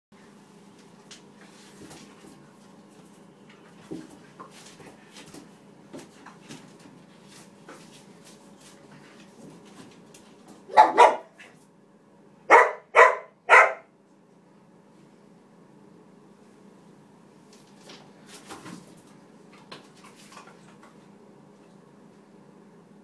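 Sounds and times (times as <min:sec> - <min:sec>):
dog barking: 0:10.7 - 0:11.5, 0:12.5 - 0:13.9.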